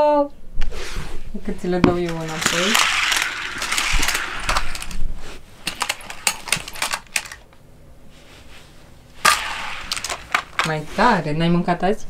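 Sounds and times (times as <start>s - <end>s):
plastic toy cars clicking and clattering: 1.8s - 5.0s, 5.6s - 7.6s, 9.2s - 10.8s.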